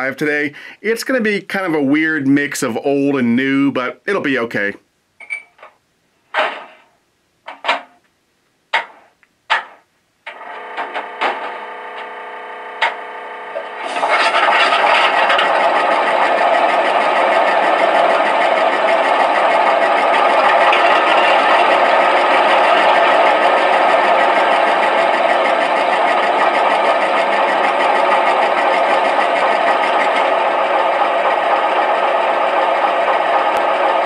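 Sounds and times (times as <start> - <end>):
low hum: 10.3 - 34.0
diesel engine idling: 13.6 - 34.0.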